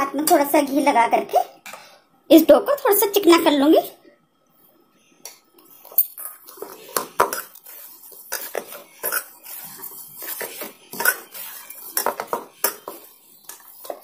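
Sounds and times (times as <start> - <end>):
dough kneaded in metal bowl: 5.8 - 14.0.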